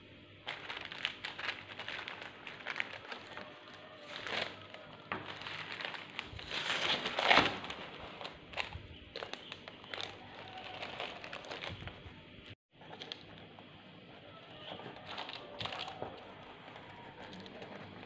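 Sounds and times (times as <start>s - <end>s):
paper and towel rustling: 0.4s - 12.2s.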